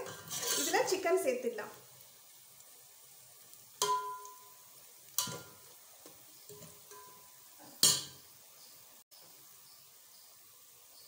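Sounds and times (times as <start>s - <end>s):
spatula scraping steel pot: 0.0s - 1.0s
oil sizzling: 0.0s - 11.0s.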